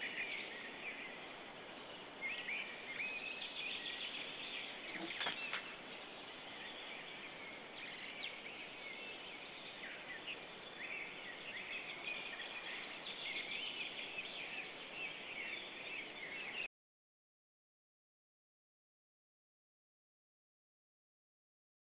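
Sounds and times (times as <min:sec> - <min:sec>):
birds chirping and trilling: 0:00.0 - 0:16.7.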